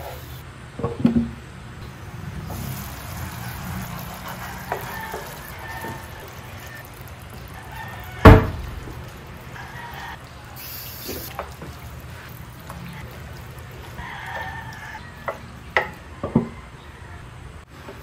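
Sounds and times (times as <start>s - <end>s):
sauce simmering in a frying pan: 1.8s - 15.0s
wooden spatula stirring: 2.7s - 8.2s.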